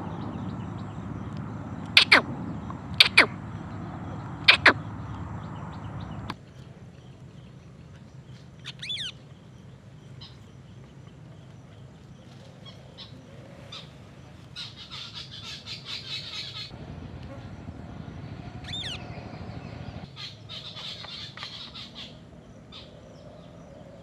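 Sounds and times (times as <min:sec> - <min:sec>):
parakeet chirps: 0:01.8 - 0:03.4, 0:04.0 - 0:06.3, 0:08.6 - 0:09.2, 0:18.6 - 0:22.9
parakeet screeching: 0:02.0 - 0:02.2, 0:08.6 - 0:09.1, 0:18.6 - 0:19.1.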